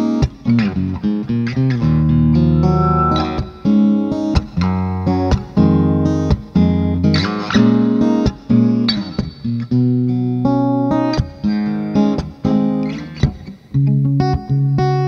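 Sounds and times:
acoustic guitar plucked chords: 2.1s - 4.3s.

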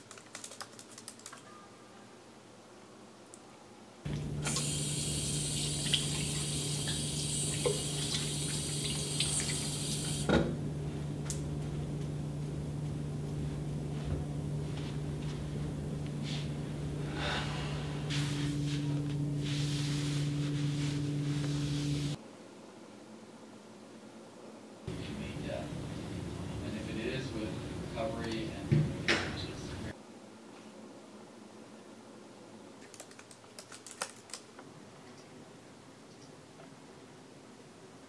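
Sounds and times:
steady low hum: 3.9s - 32.7s
tap running into a sink: 5.6s - 10.4s.

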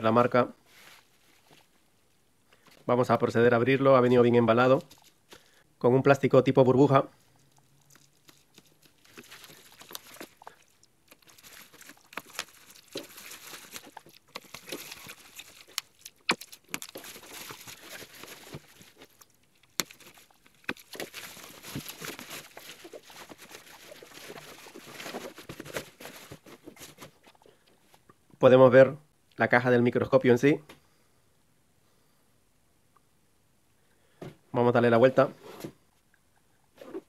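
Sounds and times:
bubble wrap crinkling: 7.3s - 27.4s.

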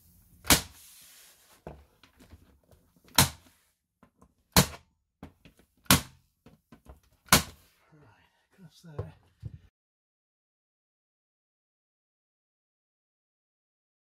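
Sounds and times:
rubber mallet striking wood: 3.1s - 3.4s, 4.5s - 4.9s, 5.8s - 6.2s, 7.2s - 7.6s.

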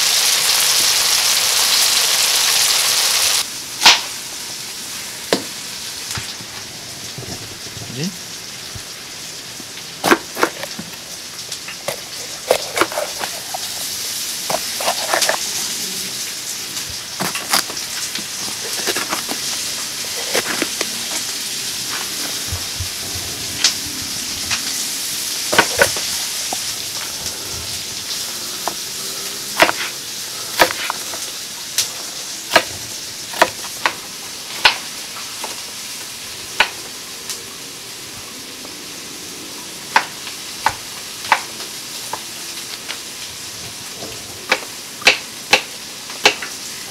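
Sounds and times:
food sizzling in a pan: 0.0s - 46.9s
knife chopping on wooden board: 10.0s - 10.9s, 11.9s - 13.6s, 14.5s - 15.4s, 17.2s - 21.2s, 25.5s - 26.6s, 29.6s - 29.9s, 30.6s - 31.1s, 33.4s - 34.0s.

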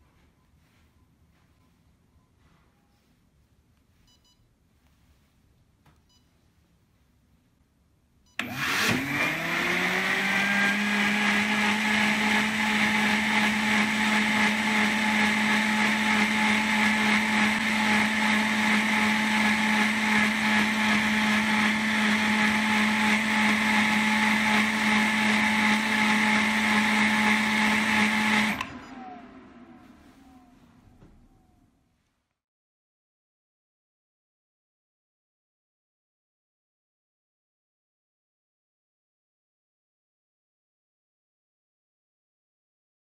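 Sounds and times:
blender motor running: 8.4s - 29.8s.

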